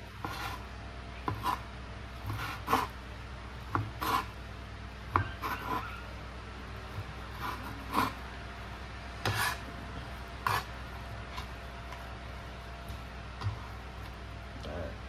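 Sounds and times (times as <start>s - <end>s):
cleaver chopping on cutting board: 2.2s - 2.9s, 9.2s - 9.6s.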